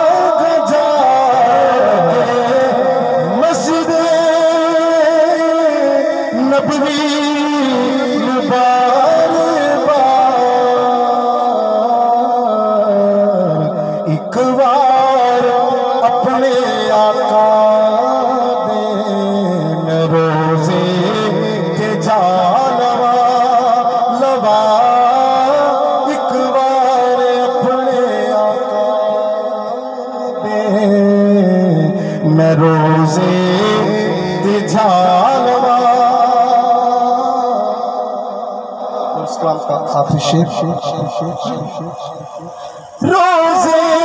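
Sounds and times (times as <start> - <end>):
man singing over loudspeaker: 0.0 - 44.0.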